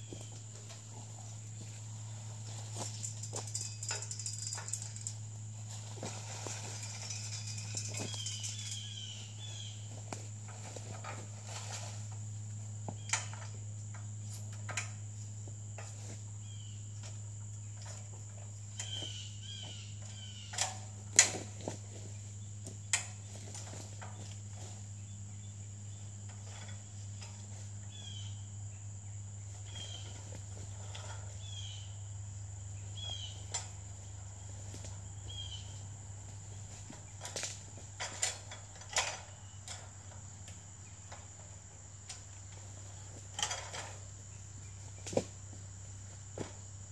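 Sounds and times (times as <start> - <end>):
crickets droning: 0.0 - 46.9
metal ladder stand clanking: 2.8 - 5.2, 37.2 - 40.2, 43.3 - 44.0.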